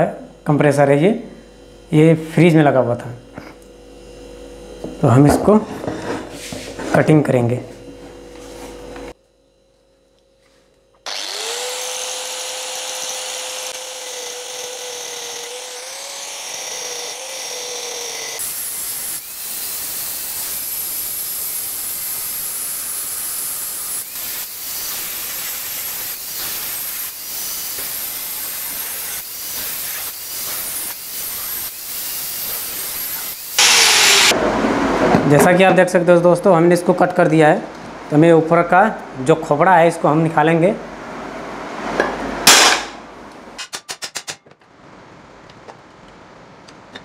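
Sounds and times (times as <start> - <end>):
angle grinder whining: 11.0 - 34.4
grinding disc on metal: 11.1 - 34.3.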